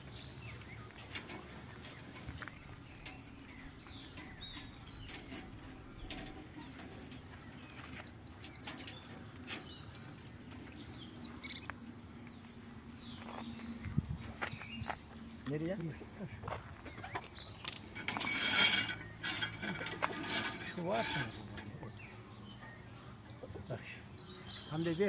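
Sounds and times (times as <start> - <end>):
small birds chirping: 0.0 - 25.0
wire twisted with pliers: 17.6 - 21.8.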